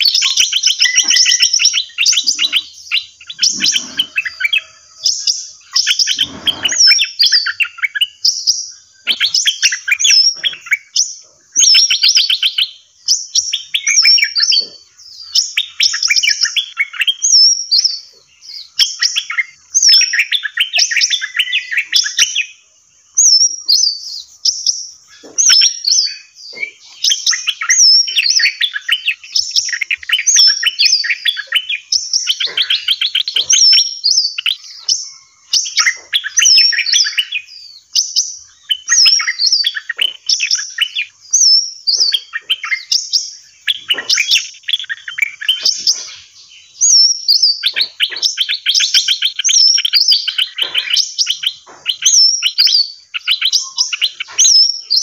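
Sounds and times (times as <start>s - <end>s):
songbirds chirping and trilling: 0.0s - 55.0s
high hooked bird whistle: 23.2s - 46.1s.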